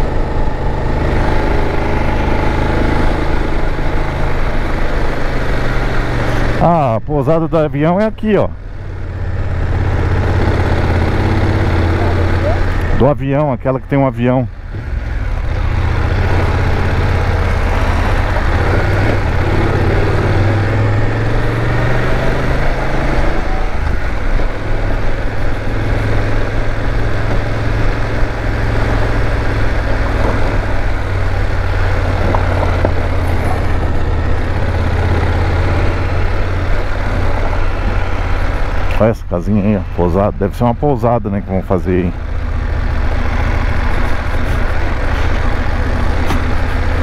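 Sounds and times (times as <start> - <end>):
motorcycle engine pulling: 15.3 - 47.0.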